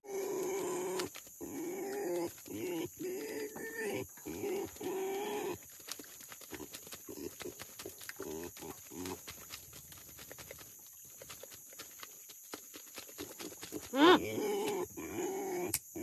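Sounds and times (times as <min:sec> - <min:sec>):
pigs squealing: 0:00.0 - 0:05.6, 0:13.8 - 0:16.0
insects chirring: 0:00.0 - 0:16.0.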